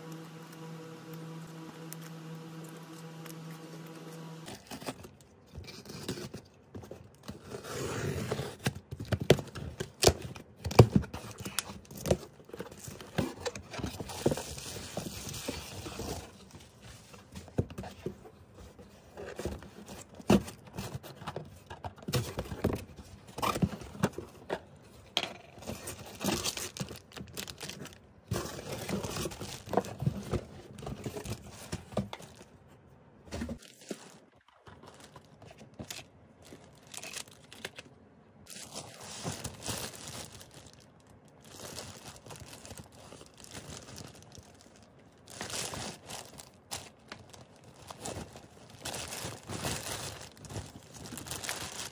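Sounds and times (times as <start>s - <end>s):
cardboard scraping and tearing: 0.0s - 6.5s, 7.3s - 9.6s.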